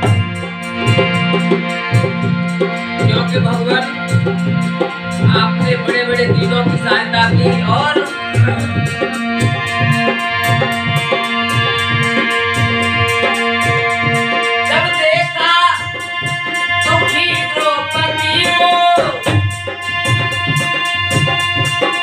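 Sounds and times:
hand drum beat: 0:00.0 - 0:22.0
harmonium playing melody: 0:00.0 - 0:22.0
man singing: 0:03.0 - 0:04.3, 0:05.2 - 0:12.8, 0:13.4 - 0:16.1, 0:16.8 - 0:19.4.

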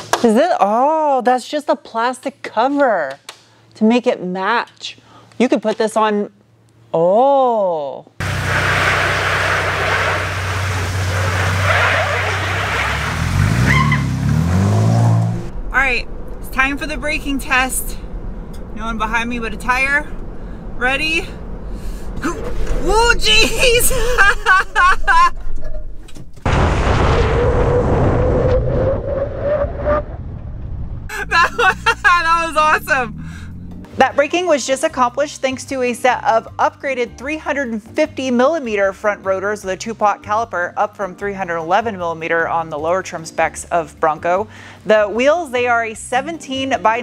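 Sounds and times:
truck engine running: 0:08.2 - 0:26.4, 0:30.9 - 0:34.1
road and tyre noise: 0:08.2 - 0:26.5, 0:27.4 - 0:34.3
tire rolling on asphalt: 0:08.2 - 0:34.1
tire hum: 0:08.2 - 0:34.4
wind buffeting: 0:13.2 - 0:33.9
woman laughing and shrieking: 0:22.2 - 0:25.8, 0:31.1 - 0:33.2.

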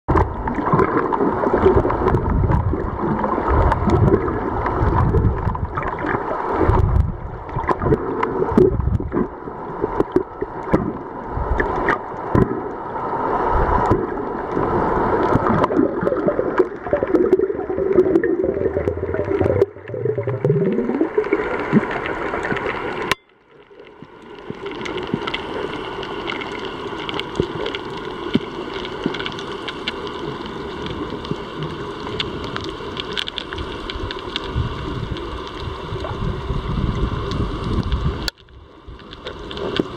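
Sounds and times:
muffled rushing underwater water: 0:00.1 - 0:39.9
steady hiss: 0:21.2 - 0:39.9.

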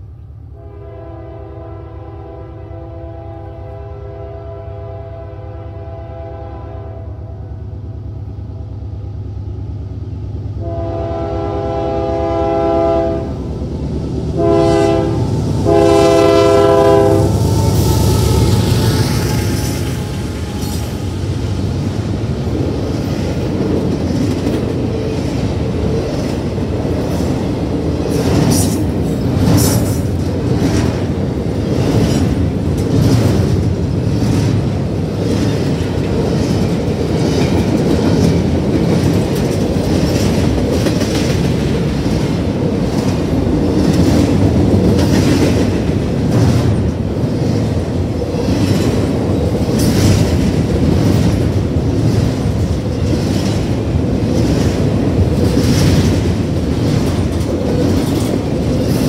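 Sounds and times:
train wheels rumbling on rails: 0:00.0 - 0:59.0
sharp clacks of train wheels: 0:15.4 - 0:59.0.

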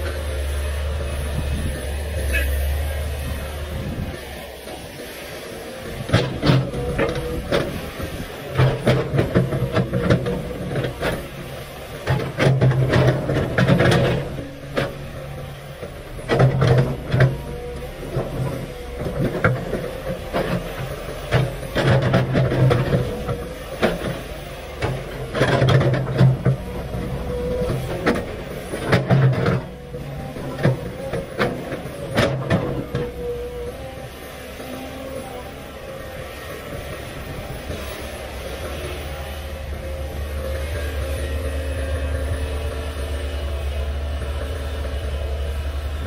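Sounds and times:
excavator diesel engine running: 0:00.0 - 0:46.0.

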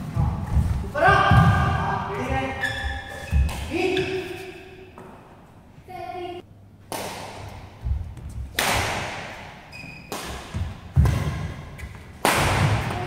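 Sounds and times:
shoe squeak: 0:02.4 - 0:04.9, 0:09.7 - 0:10.1
racket striking shuttlecock: 0:08.4 - 0:13.0.

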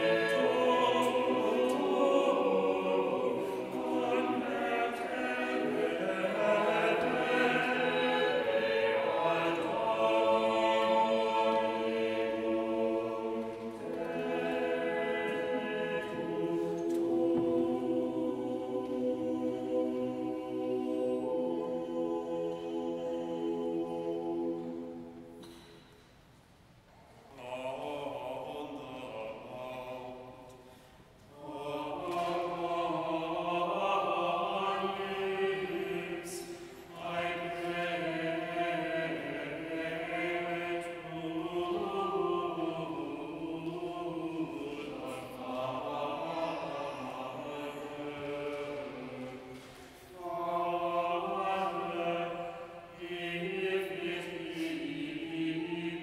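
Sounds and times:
choir singing chant: 0:00.0 - 0:25.7, 0:27.2 - 0:56.0.

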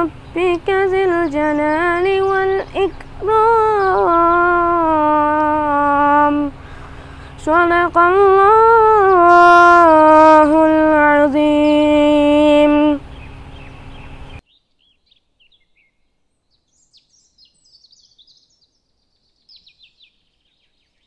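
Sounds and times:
boy chanting: 0:00.0 - 0:06.6, 0:07.3 - 0:13.1
faint bird chirps: 0:13.1 - 0:21.0.

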